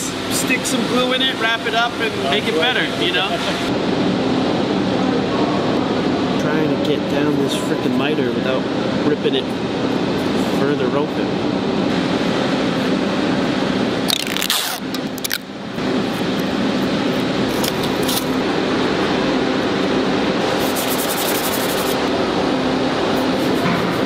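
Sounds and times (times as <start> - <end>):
workshop hum: 0.0 - 24.0.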